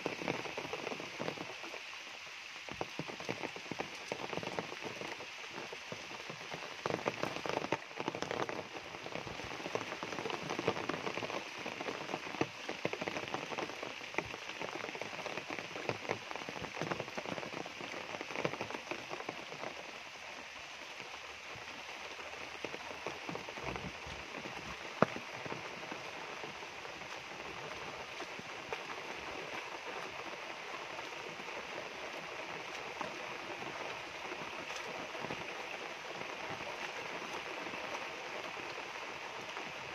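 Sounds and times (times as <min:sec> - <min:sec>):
rain falling on foliage: 0:00.0 - 0:39.9.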